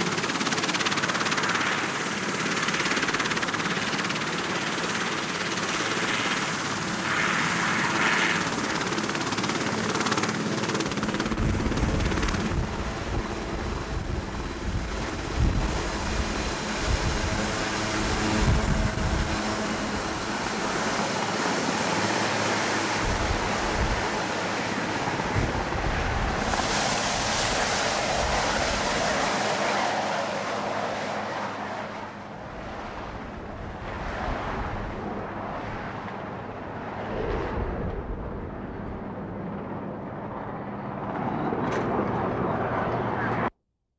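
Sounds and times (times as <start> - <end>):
helicopter turbine whine: 0.0 - 43.5
helicopter rotor thumping: 8.4 - 29.6.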